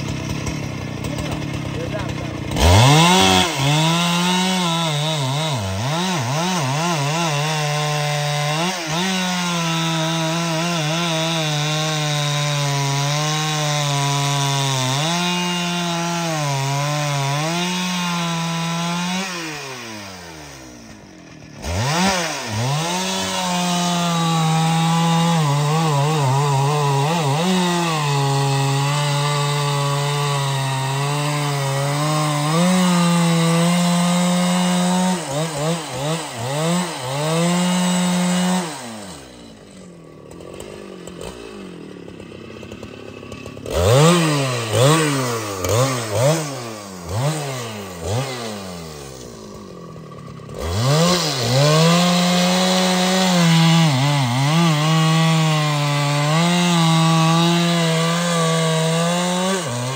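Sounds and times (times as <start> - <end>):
chainsaw cutting wood: 0.0 - 59.9.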